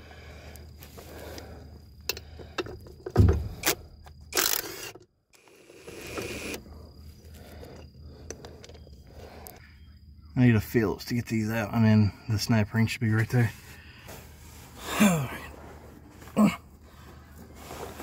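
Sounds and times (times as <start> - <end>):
cordless drill rattling and clicking: 3.5 - 6.6.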